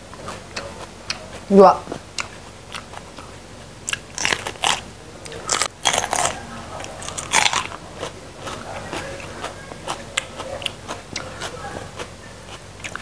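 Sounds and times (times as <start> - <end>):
chewing: 0.1 - 13.0
crisp crunching bites: 3.9 - 6.4, 7.0 - 8.1.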